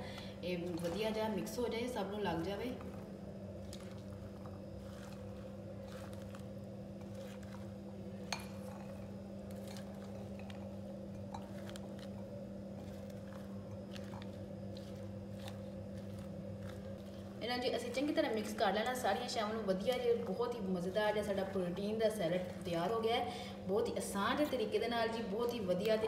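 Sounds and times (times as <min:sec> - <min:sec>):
steady low hum: 0:00.0 - 0:26.0
spatula scraping a bowl: 0:02.7 - 0:12.2.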